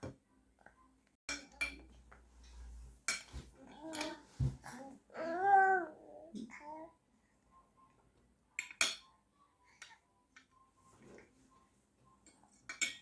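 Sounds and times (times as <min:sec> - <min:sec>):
cutlery clinking on a plate: 0:03.1 - 0:04.2, 0:08.6 - 0:09.2, 0:12.2 - 0:13.0.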